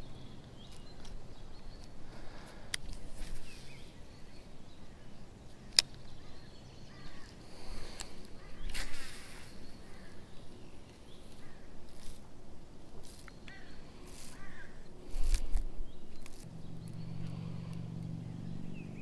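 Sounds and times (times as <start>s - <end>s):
steady low hum: 0.0s - 19.0s
fishing reel clicks and rustles: 10.9s - 12.2s, 13.0s - 16.5s.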